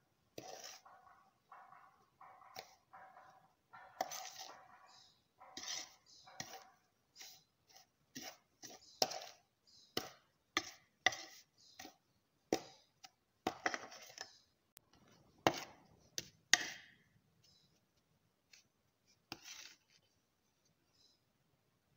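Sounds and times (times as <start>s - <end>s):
spoon scraping and knocking bowl: 0.3s - 12.8s, 13.4s - 14.4s, 15.0s - 17.0s, 19.3s - 19.9s.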